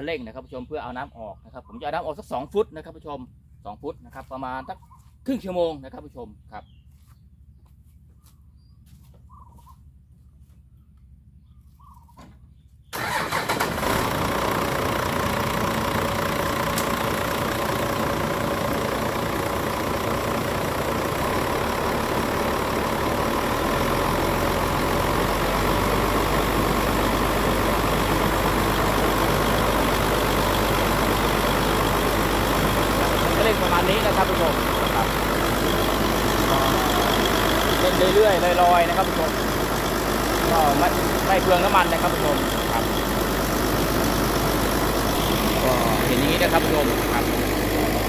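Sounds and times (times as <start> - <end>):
tractor engine running: 8.9 - 48.0
deep steady hum: 13.8 - 48.0.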